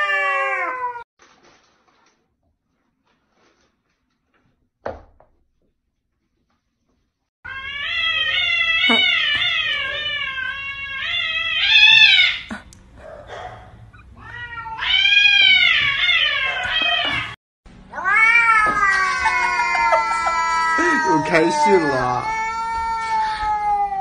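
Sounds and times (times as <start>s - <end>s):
cat yowling: 0.0s - 1.0s, 7.5s - 12.5s, 13.3s - 24.0s.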